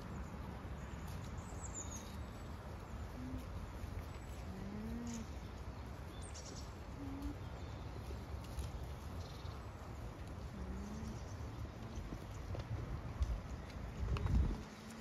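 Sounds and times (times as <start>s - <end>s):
low outdoor rumble: 0.0s - 15.0s
low smooth animal hums: 3.0s - 5.5s, 6.8s - 7.7s, 10.5s - 11.4s.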